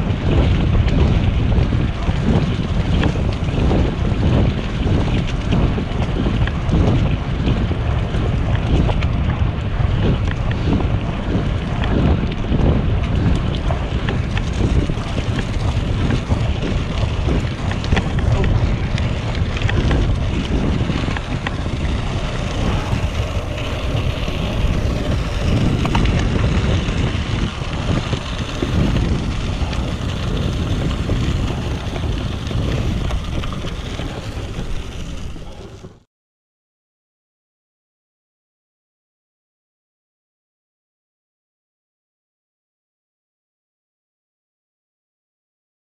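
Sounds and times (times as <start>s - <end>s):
wind buffeting microphone: 0.0s - 36.0s.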